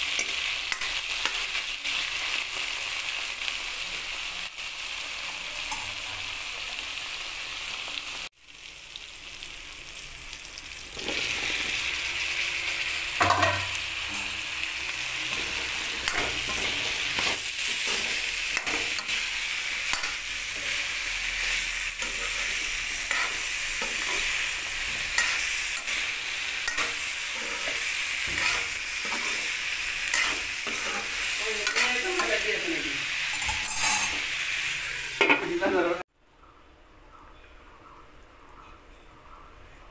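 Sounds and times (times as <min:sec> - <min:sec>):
food sizzling in oil in a wok: 0:00.0 - 0:36.1
metal spatula scraping a pan: 0:12.8 - 0:34.4.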